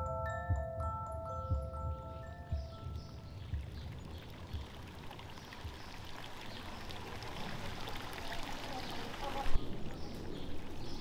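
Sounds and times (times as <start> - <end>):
stream splashing over rocks: 3.4 - 11.0.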